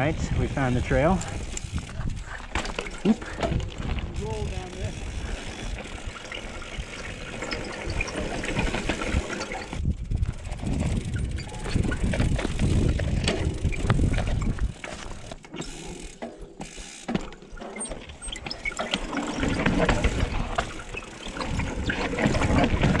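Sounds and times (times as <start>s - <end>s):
wind rumble on microphone: 0.0s - 15.1s, 21.3s - 23.0s
bike freewheel hub ticking: 0.0s - 23.0s
bike rattles and knocks: 0.0s - 23.0s.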